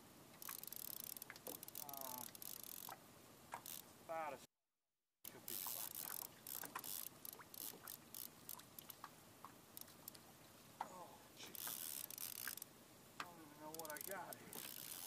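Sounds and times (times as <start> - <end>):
fishing reel clicking: 0.4 - 2.9, 3.6 - 3.8, 5.3 - 8.9, 9.8 - 10.2, 11.5 - 12.7, 13.6 - 15.0.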